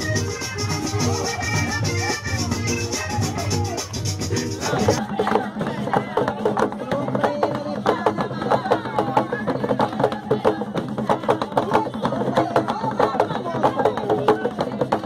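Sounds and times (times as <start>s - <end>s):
drums beating quick rhythm: 0.0s - 15.0s
woman singing into microphone: 5.0s - 14.8s.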